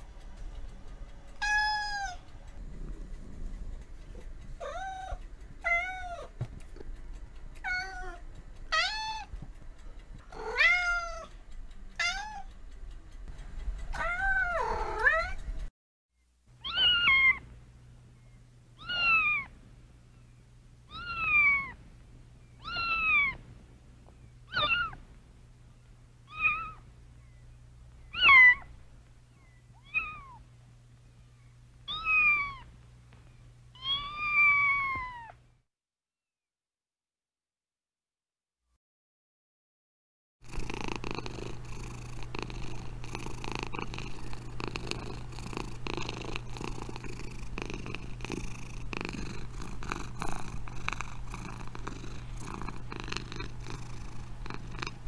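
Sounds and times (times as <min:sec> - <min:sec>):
steady low hum: 0:00.0 - 0:35.6, 0:40.4 - 0:55.0
cat meowing: 0:01.4 - 0:02.2, 0:04.6 - 0:06.3, 0:07.6 - 0:09.3, 0:10.4 - 0:11.3, 0:12.0 - 0:12.5, 0:14.0 - 0:15.4, 0:16.6 - 0:17.4, 0:18.8 - 0:19.5, 0:20.9 - 0:21.8, 0:22.6 - 0:23.4, 0:24.5 - 0:25.0, 0:26.3 - 0:26.8, 0:28.1 - 0:28.7, 0:29.8 - 0:30.4, 0:31.9 - 0:32.7, 0:33.8 - 0:35.4.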